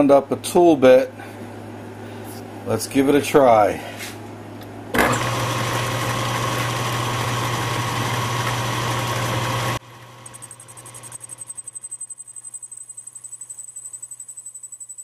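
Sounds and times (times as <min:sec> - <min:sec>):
metal lathe humming: 0:05.0 - 0:11.8.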